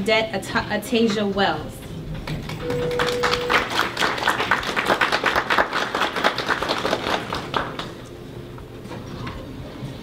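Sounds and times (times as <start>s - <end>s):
audience applauding: 2.2s - 8.0s.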